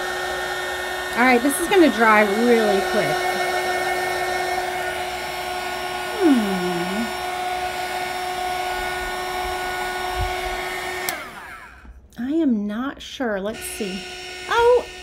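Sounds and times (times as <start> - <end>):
heat gun fan blowing: 0.0 - 11.9.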